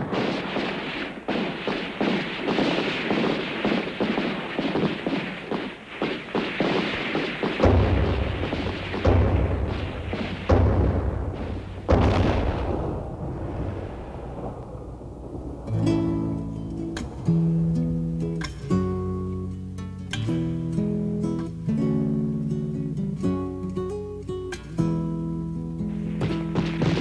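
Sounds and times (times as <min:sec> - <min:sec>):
rapid gunshots: 0:00.0 - 0:18.6, 0:25.9 - 0:27.0
heavy booming gunshots: 0:00.0 - 0:19.6, 0:25.9 - 0:27.0.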